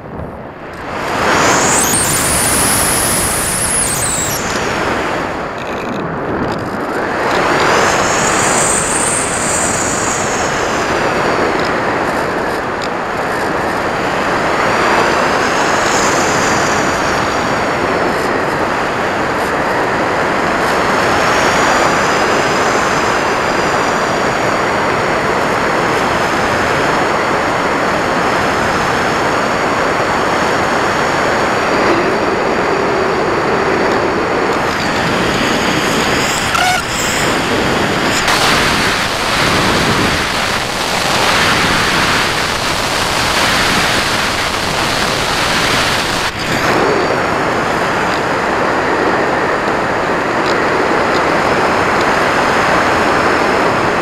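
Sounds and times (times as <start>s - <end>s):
wind rush: 0.0s - 54.0s
electric motor whine: 0.6s - 13.9s, 33.7s - 48.4s.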